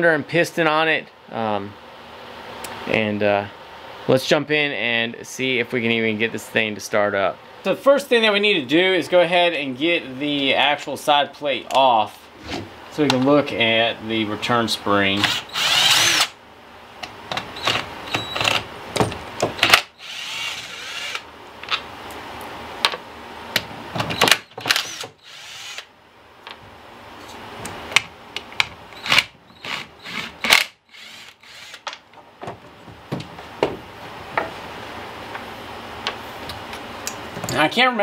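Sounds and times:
cordless drill running: 15.2s - 16.4s, 19.6s - 21.2s, 24.4s - 25.9s, 29.0s - 31.8s.

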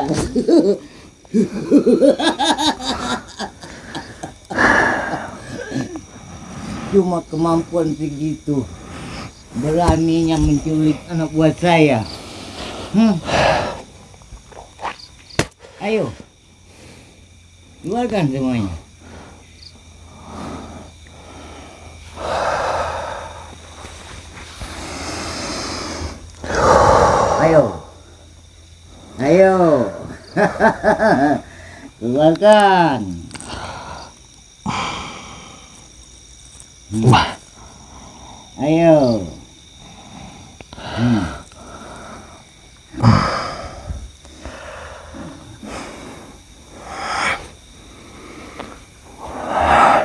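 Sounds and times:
person breathing heavily: 2.9s - 7.1s, 8.5s - 9.7s, 12.0s - 14.2s, 18.8s - 29.2s, 31.4s - 32.0s, 33.4s - 35.9s, 37.1s - 38.6s, 39.4s - 50.0s
forceful breathy exhale: 24.7s - 27.9s, 48.1s - 50.0s.

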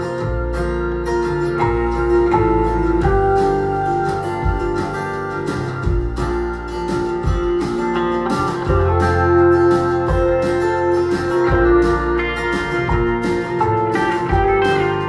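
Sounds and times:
acoustic folk music over loudspeakers: 0.0s - 15.0s.

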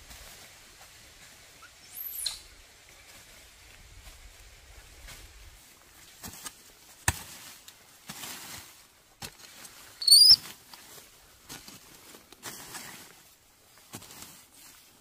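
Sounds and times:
baby monkey squeak: 1.8s - 2.5s, 10.0s - 10.4s
soft rustling: 2.5s - 15.0s.

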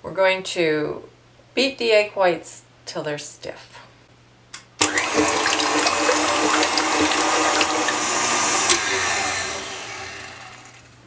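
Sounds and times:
whisk whirring in steel bowl: 4.8s - 10.9s
stand mixer motor whine: 4.8s - 11.0s.

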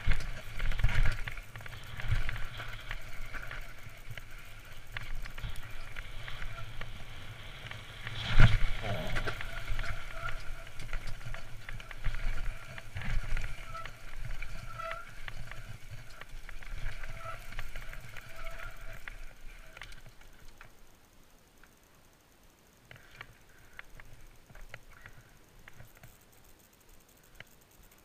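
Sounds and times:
wind rumble on microphone: 0.0s - 20.4s
bike clattering over bumps: 0.0s - 20.8s
bike tyres on dirt: 0.0s - 28.0s.

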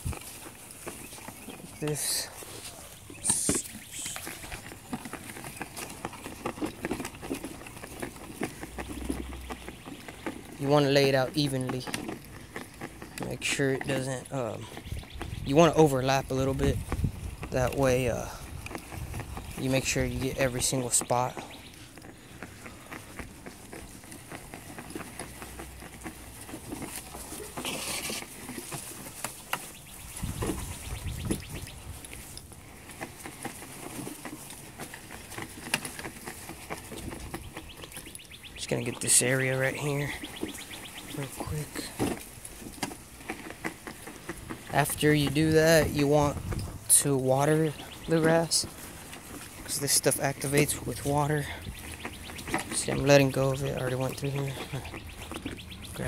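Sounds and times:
footsteps on grass: 0.0s - 11.6s
spreader wheels ticking over grass: 0.0s - 56.0s.

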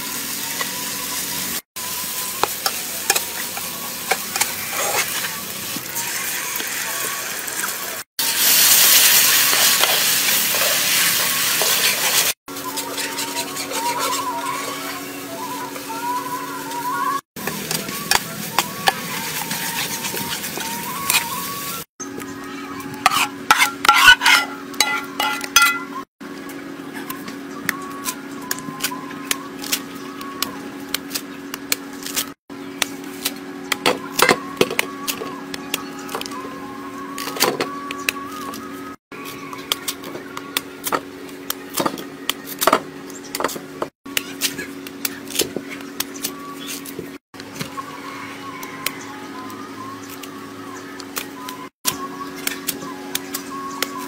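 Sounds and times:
sauce sizzling in a wok: 0.0s - 12.4s
metal ladle stirring: 23.0s - 25.9s
slice clattering on metal plate: 23.1s - 25.9s.

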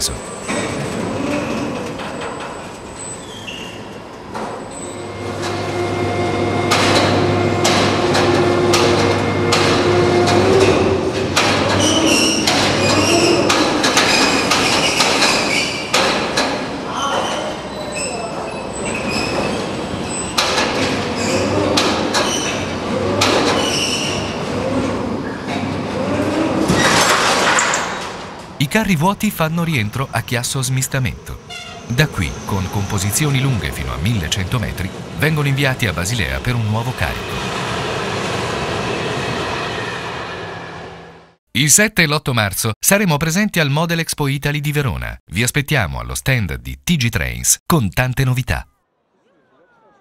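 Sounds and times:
crane hoist humming: 3.8s - 14.6s
high metallic squeals: 4.6s - 16.0s, 16.9s - 20.4s
metal clanks and knocks: 6.7s - 16.7s.

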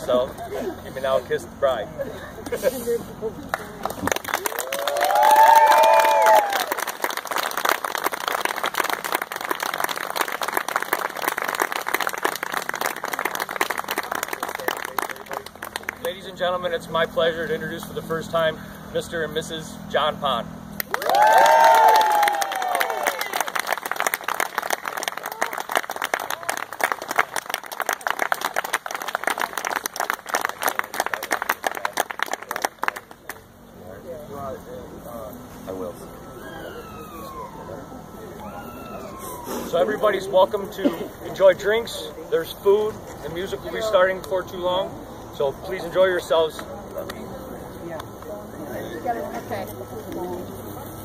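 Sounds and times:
people clapping: 3.4s - 16.3s, 20.8s - 33.5s
people applauding: 3.5s - 16.2s, 20.8s - 33.4s.

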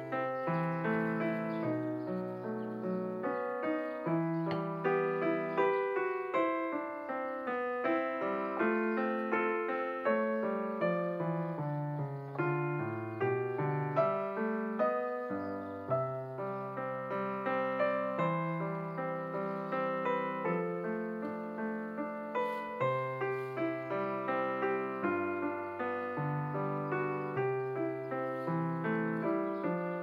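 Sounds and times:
piano music: 0.0s - 30.0s.

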